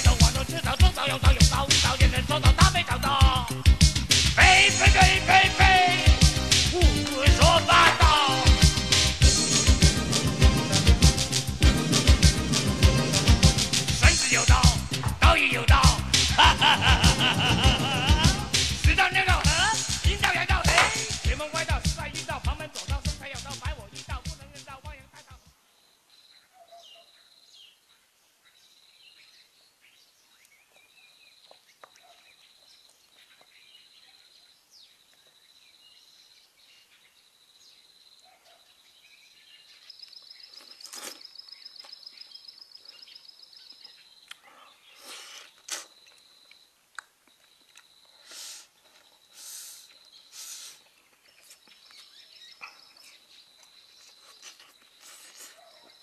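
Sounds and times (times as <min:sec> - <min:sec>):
fast pulsing insect call: 0:48.0 - 0:50.9.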